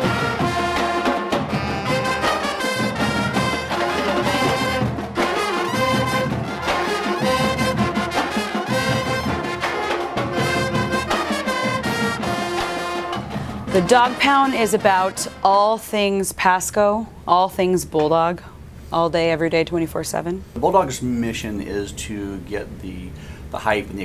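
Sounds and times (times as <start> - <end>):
upbeat brass band music: 0.0 - 16.0.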